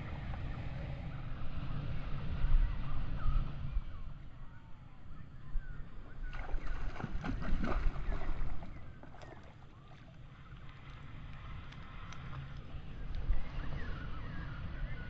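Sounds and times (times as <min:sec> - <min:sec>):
wind rumbling on microphone: 0:00.0 - 0:15.0
small clicks and crackles: 0:09.0 - 0:13.3.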